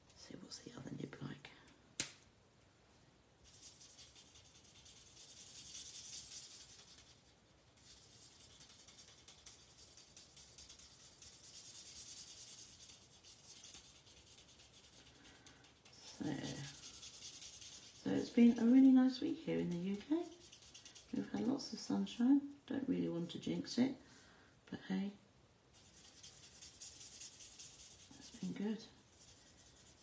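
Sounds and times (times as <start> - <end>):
marker rubbing on cardstock: 3.5 - 15.0, 16.0 - 18.7, 25.8 - 30.0.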